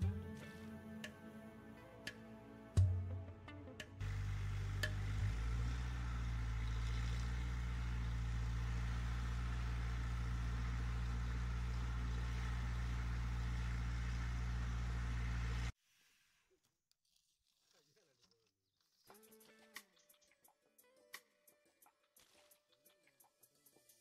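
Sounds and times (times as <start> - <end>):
air compressor engine hum: 4.0 - 15.7.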